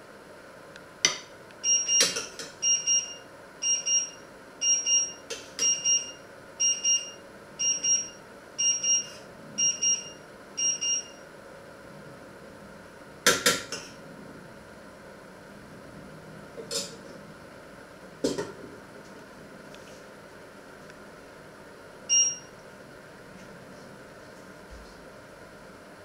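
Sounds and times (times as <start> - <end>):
electronic alarm double beeps: 1.6 - 11.2, 22.1 - 22.5.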